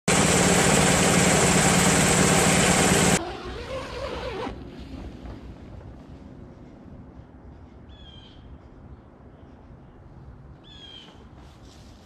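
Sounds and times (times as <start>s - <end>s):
loud engine running: 0.1s - 3.2s.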